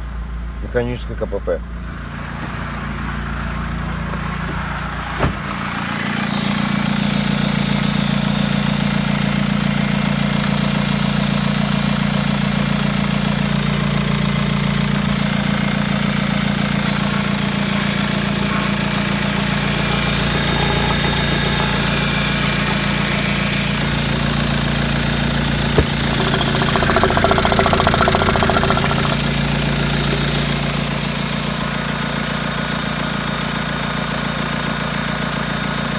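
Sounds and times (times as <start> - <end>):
diesel engine idling: 13.4 - 32.4.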